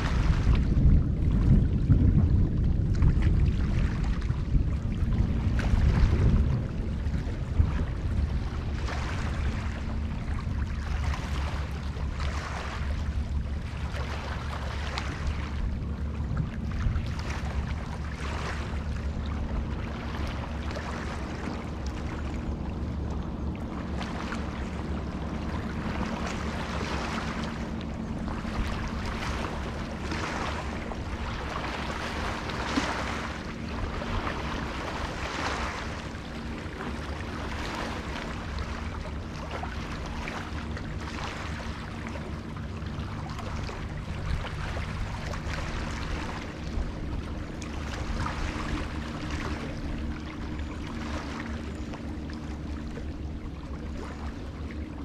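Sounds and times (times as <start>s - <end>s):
small waves lapping: 0.0s - 55.0s
steady low hum: 0.0s - 55.0s
wind: 0.0s - 55.0s.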